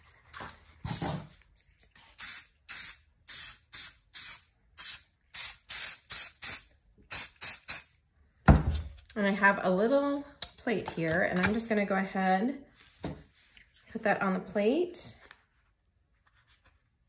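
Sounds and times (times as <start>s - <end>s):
aerosol spray hissing bursts: 2.2s - 7.9s.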